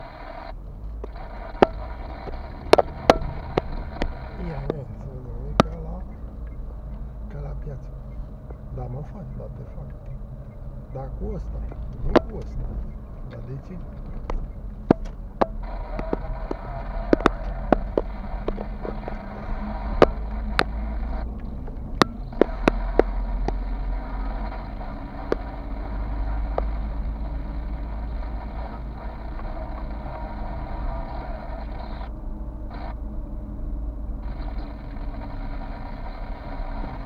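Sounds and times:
car engine and road rumble: 0.0s - 37.0s
interior clicks and ticks: 5.4s - 7.0s, 11.6s - 27.4s.

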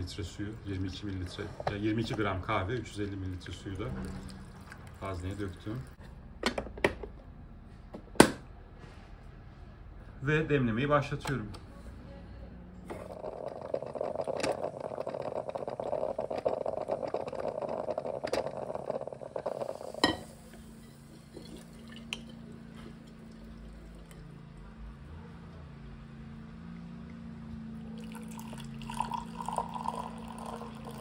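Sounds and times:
coffee maker hissing: 0.0s - 6.0s, 12.9s - 22.5s, 27.9s - 31.0s
coffee poured into mug: 0.2s - 6.0s, 12.9s - 24.3s, 27.6s - 31.0s.

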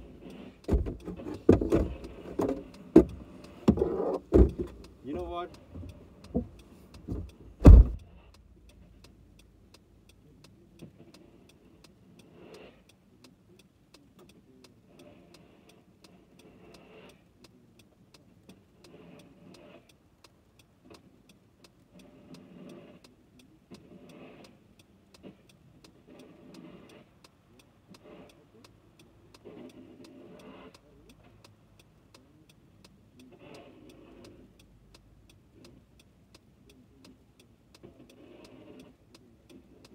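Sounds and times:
faint even ticking: 0.0s - 39.9s
car door shutting: 0.7s - 4.8s, 7.1s - 8.2s
knocks inside a car: 3.0s - 4.8s, 7.1s - 8.1s.

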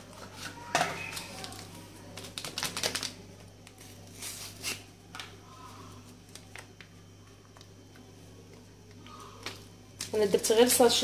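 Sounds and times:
faint low hum: 0.0s - 11.0s
sachet crinkling as torn open: 1.2s - 4.9s.

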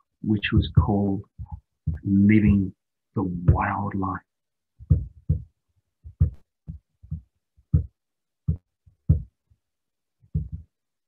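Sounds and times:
short dull knocks: 4.8s - 9.4s, 10.3s - 10.7s.

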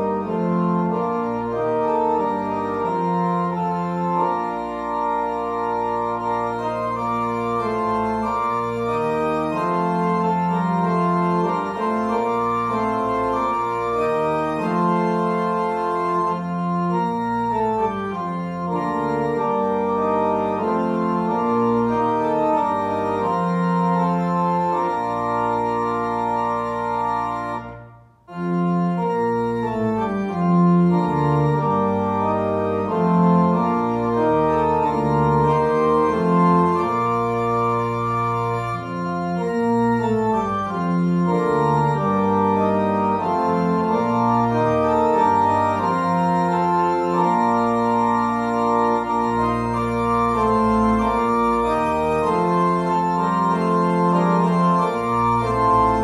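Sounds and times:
organ playing slow chords: 0.0s - 56.0s.

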